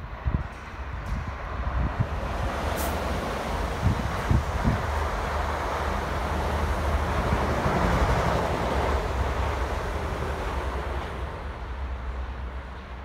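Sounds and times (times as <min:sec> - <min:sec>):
train passing at speed: 0:00.0 - 0:13.0
wheels rushing on rail: 0:00.0 - 0:13.0.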